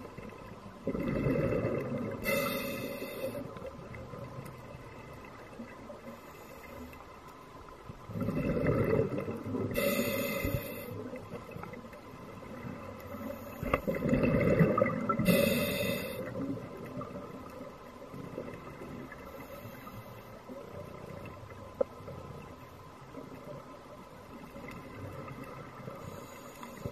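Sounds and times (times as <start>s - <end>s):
bubbles gurgling: 0.8s - 2.3s, 8.1s - 9.8s, 13.9s - 15.3s
diver breathing through regulator: 2.2s - 3.5s, 9.7s - 11.0s, 15.2s - 16.3s.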